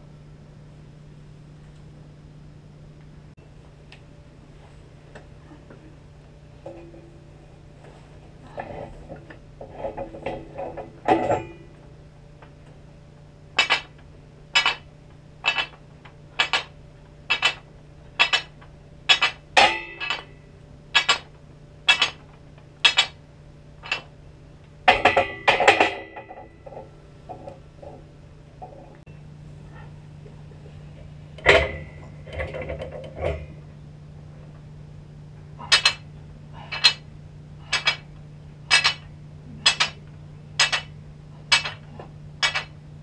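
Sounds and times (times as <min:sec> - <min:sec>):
faint steady hum: 0:00.0 - 0:43.0
barbell clinking during reps: 0:08.6 - 0:11.7, 0:13.6 - 0:14.0, 0:14.6 - 0:15.8, 0:16.4 - 0:16.7, 0:17.3 - 0:17.6, 0:18.2 - 0:21.3, 0:21.9 - 0:22.2, 0:22.8 - 0:23.2, 0:23.8 - 0:24.1, 0:24.9 - 0:27.5, 0:35.6 - 0:37.0, 0:37.6 - 0:38.1, 0:38.7 - 0:40.0, 0:40.6 - 0:42.8
barbell clanking in hooks: 0:13.6 - 0:13.9, 0:14.6 - 0:14.8, 0:15.4 - 0:15.8, 0:16.4 - 0:16.7, 0:18.2 - 0:18.5, 0:19.1 - 0:20.4, 0:21.0 - 0:21.3, 0:21.9 - 0:22.2, 0:22.8 - 0:23.2, 0:35.6 - 0:37.0, 0:37.6 - 0:38.0, 0:38.7 - 0:40.0, 0:40.6 - 0:41.8, 0:42.4 - 0:42.7.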